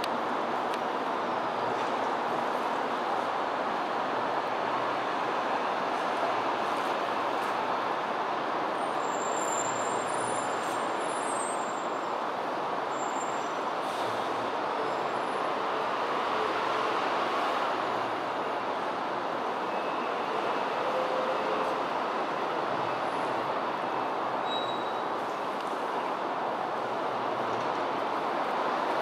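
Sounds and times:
distant road traffic roar: 0.0s - 29.0s.

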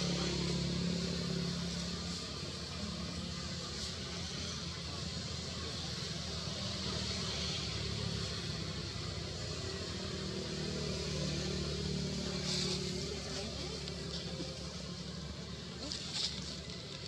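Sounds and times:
continuous hiss: 0.0s - 17.0s
vehicle engine humming: 0.0s - 17.0s.

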